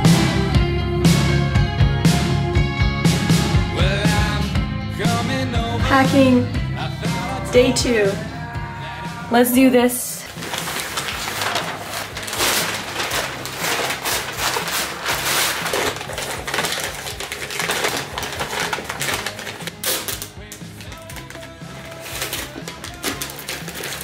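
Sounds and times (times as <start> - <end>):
background music: 0.0 - 24.0
packing paper crinkling: 10.2 - 24.0.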